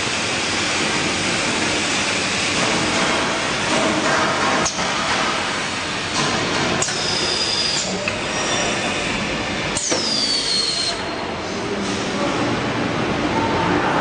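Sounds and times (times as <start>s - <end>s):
high squeal: 9.9s - 11.2s.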